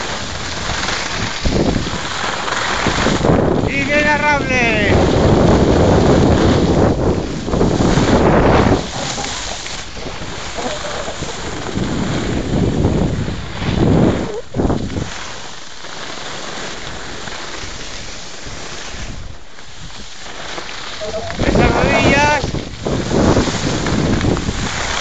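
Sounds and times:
wind rushing over microphone: 0.0s - 15.3s, 21.0s - 25.0s
skis hissing on snow: 0.0s - 25.0s.

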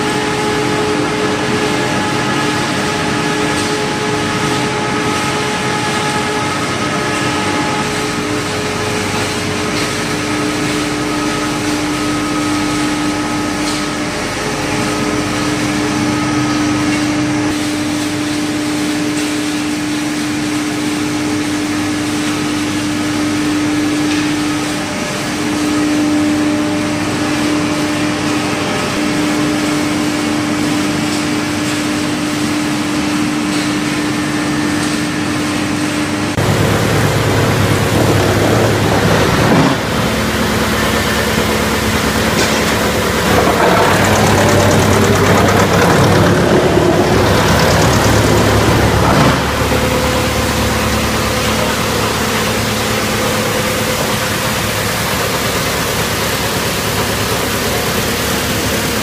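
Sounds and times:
production line machinery din: 0.0s - 59.0s
steady hum: 21.6s - 57.9s.

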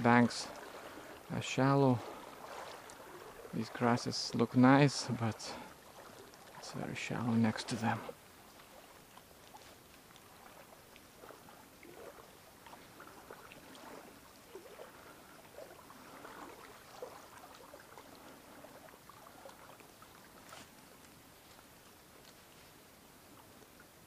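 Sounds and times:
river water sloshing and trickling: 0.0s - 24.0s.

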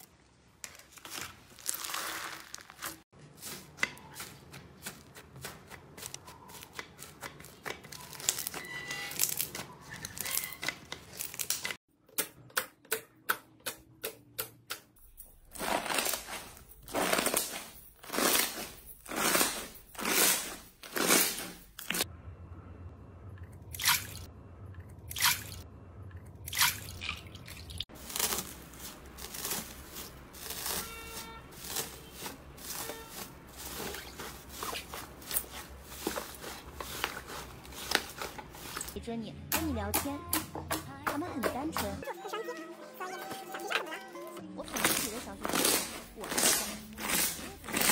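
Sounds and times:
slime squishing by hand: 27.9s - 39.0s.

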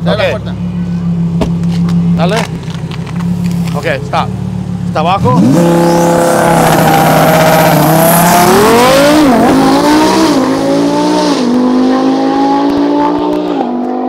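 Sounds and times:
car engine revving: 0.0s - 14.0s
car accelerating hard with upshifts: 5.2s - 14.0s.

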